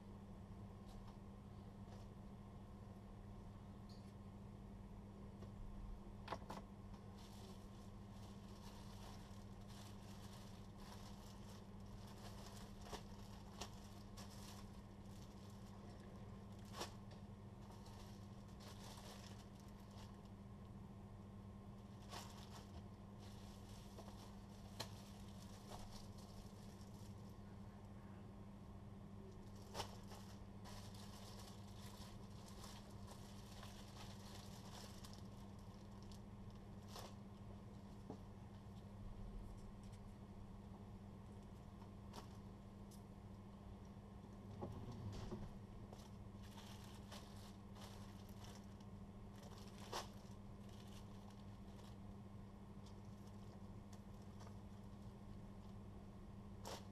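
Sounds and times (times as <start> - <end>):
steady low hum: 0.0 - 56.9
plastic bags rustling: 7.0 - 20.3, 21.8 - 27.4, 29.4 - 37.2, 45.9 - 52.1, 52.9 - 55.7.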